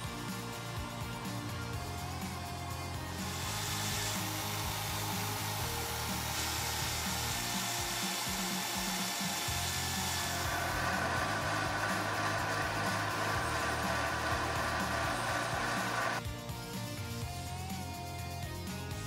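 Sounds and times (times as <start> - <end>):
background music: 0.0 - 19.0
mini lathe cutting metal: 2.9 - 16.2
drill bit boring into metal: 3.2 - 16.2.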